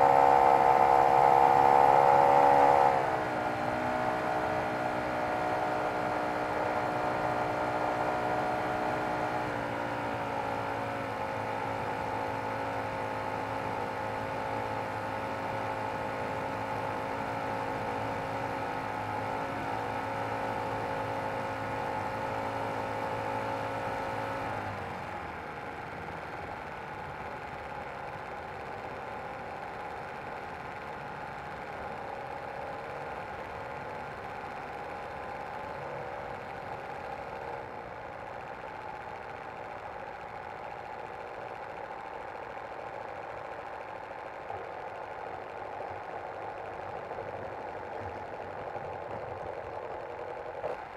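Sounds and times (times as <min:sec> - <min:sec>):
model plane engine running: 0:24.3 - 0:50.9.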